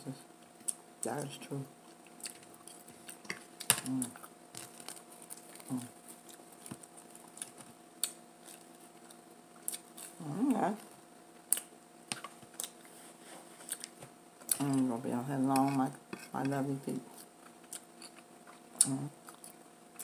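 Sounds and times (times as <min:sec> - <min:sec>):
person humming mm: 0:03.8 - 0:04.2.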